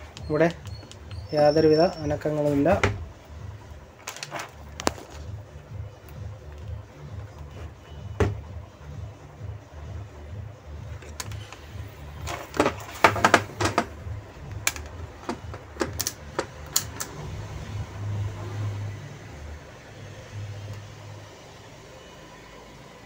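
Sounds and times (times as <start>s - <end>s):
multimeter probes clicking and tapping: 0.1s - 2.2s, 11.0s - 17.2s.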